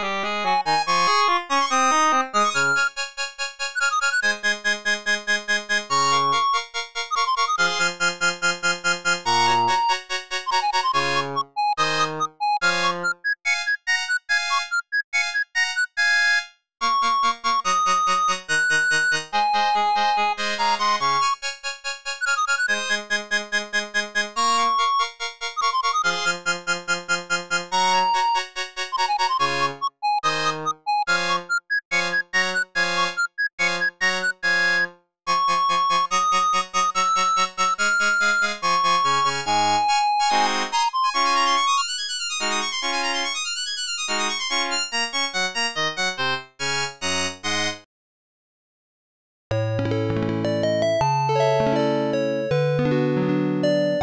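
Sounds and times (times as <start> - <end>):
synthesized ringtone melody: 0.4 - 3.0, 3.8 - 8.3, 9.0 - 21.4, 27.9 - 43.4, 49.5 - 54.0.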